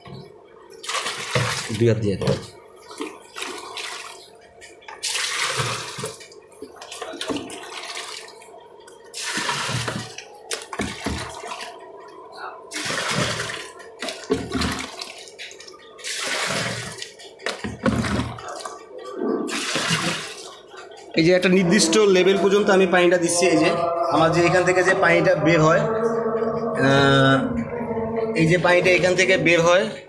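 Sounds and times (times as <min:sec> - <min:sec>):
water splashing onto stones: 0:05.0 - 0:06.2, 0:09.2 - 0:11.7, 0:12.7 - 0:17.1.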